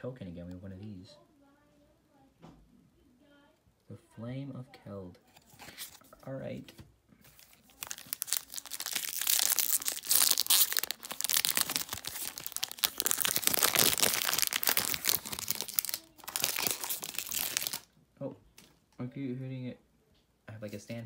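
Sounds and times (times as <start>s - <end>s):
foil wrapper crinkling and tearing: 7.3s - 17.9s.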